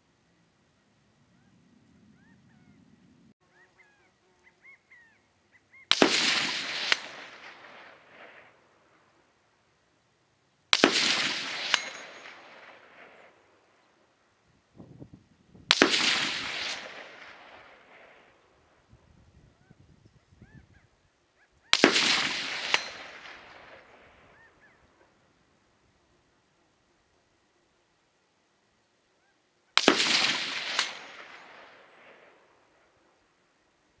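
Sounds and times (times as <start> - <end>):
rifle shots echoing: 5.9 - 9.1, 10.7 - 13.8, 15.7 - 18.6, 21.7 - 24.6, 29.8 - 33.0.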